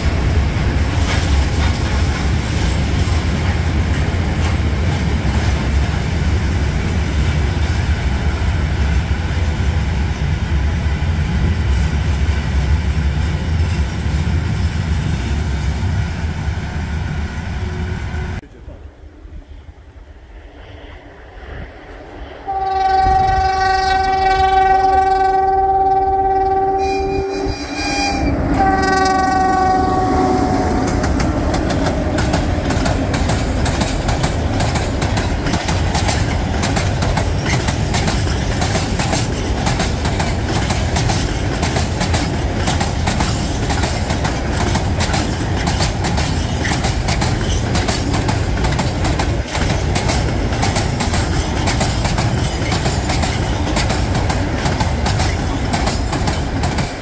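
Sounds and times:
locomotive horn blasts: 0:22.5 - 0:31.1
freight wagons rumbling and clattering: 0:30.9 - 0:57.0.

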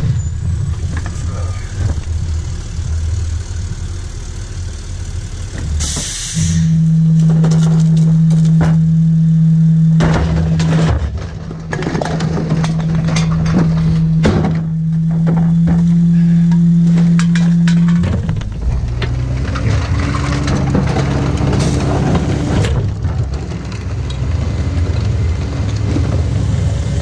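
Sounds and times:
diesel truck engine: 0:00.0 - 0:27.0
air hiss: 0:05.8 - 0:06.8
hard bang: 0:09.8 - 0:18.4
recyclables clattering into hopper: 0:10.0 - 0:16.0, 0:16.9 - 0:24.2.

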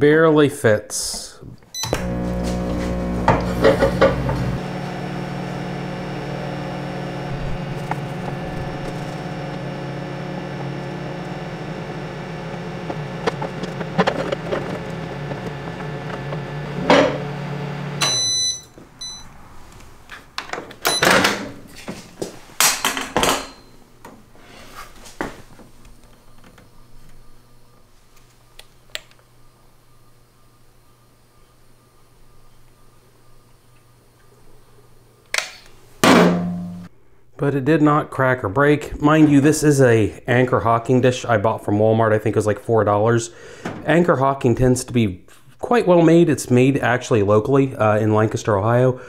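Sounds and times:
microwave oven humming: 0:01.7 - 0:19.4, 0:25.5 - 0:36.0
short high beeps: 0:18.0 - 0:19.3.

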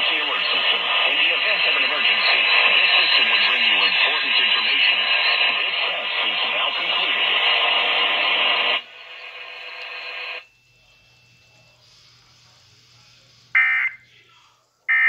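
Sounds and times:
data tone bursts: 0:00.0 - 0:07.2, 0:13.6 - 0:14.0
voice over radio speaker: 0:00.0 - 0:08.8
faint hum: 0:00.0 - 0:15.0.

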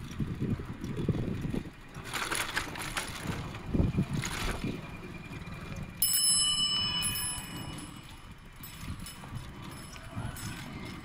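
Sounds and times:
bicycle rattling over tracks: 0:00.0 - 0:11.0
bicycle bell ringing: 0:05.3 - 0:11.0.

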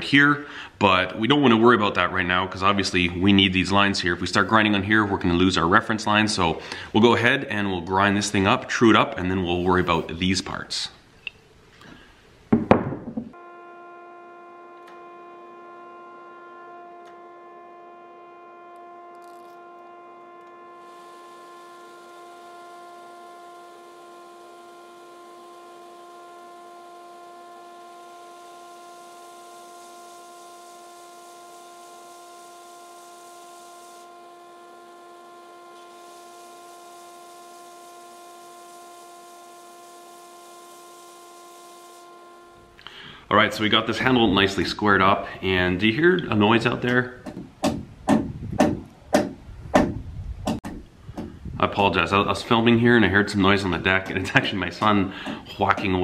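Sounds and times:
belt grinder humming: 0:12.5 - 0:49.5, 0:50.4 - 0:56.0.

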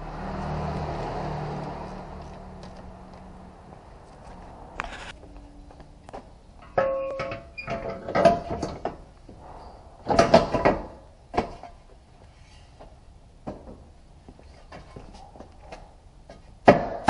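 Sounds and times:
metal clanking and scraping: 0:06.6 - 0:12.8.

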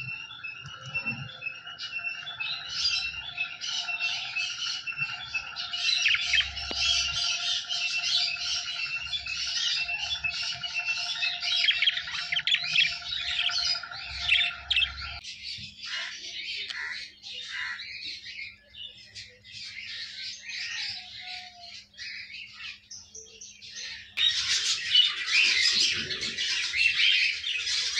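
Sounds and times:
budgerigars chattering: 0:01.7 - 0:15.2, 0:15.8 - 0:18.0.

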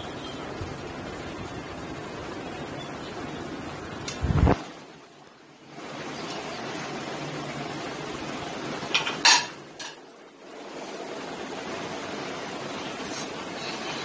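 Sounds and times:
steady hiss: 0:00.0 - 0:14.0
metal utensils clinking on cookware: 0:09.0 - 0:10.0.

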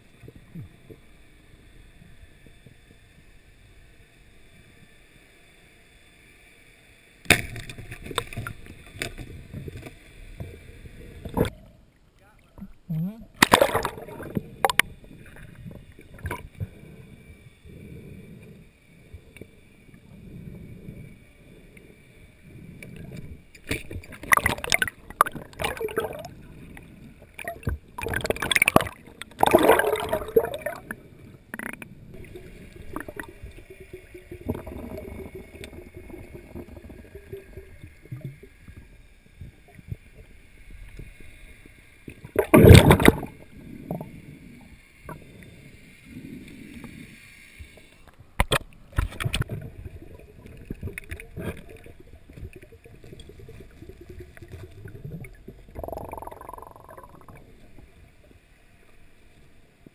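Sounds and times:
water gurgling and sloshing: 0:07.5 - 0:59.9
water rushing bursts: 0:27.3 - 0:31.0.

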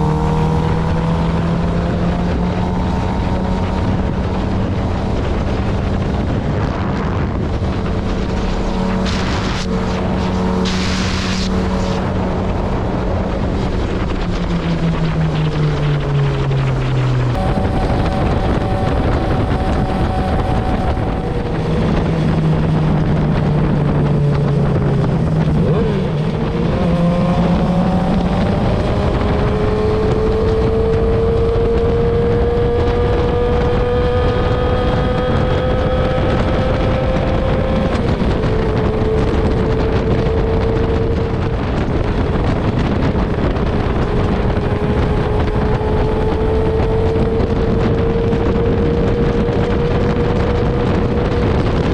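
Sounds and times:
motorcycle engine accelerating: 0:00.0 - 0:51.9
wind rush on microphone: 0:00.0 - 0:51.9.

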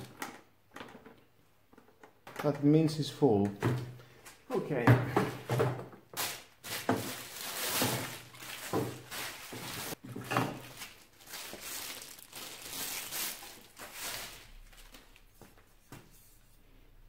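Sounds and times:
plastic wrapping crinkling: 0:06.2 - 0:15.4.

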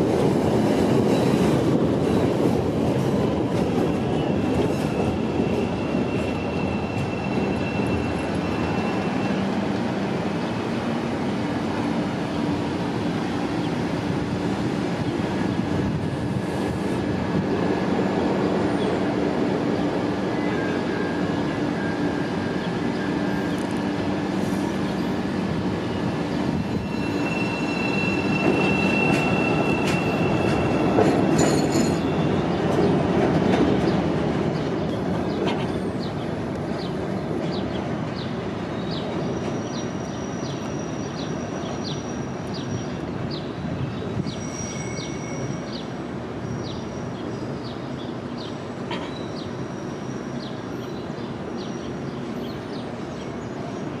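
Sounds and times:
train running on rails: 0:00.0 - 0:54.0
high wheel squeal: 0:03.9 - 0:09.7, 0:25.8 - 0:32.5, 0:44.2 - 0:45.8.

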